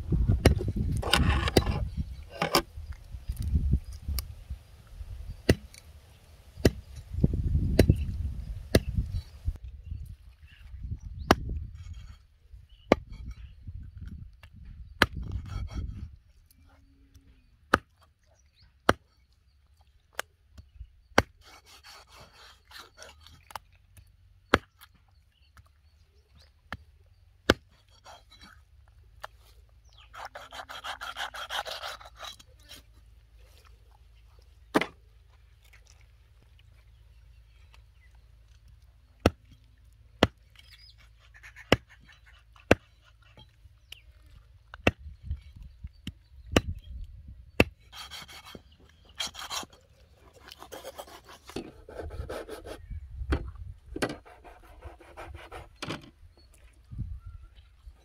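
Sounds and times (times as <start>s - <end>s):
knife scraping: 1.0s - 2.6s, 30.1s - 32.9s, 47.9s - 52.8s.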